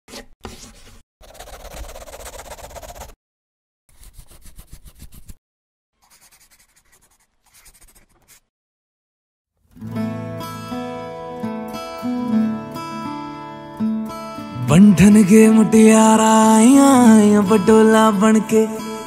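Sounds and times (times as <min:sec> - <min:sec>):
scratchy pen scribbling: 0:00.4 - 0:03.2, 0:03.9 - 0:05.4, 0:06.0 - 0:08.5.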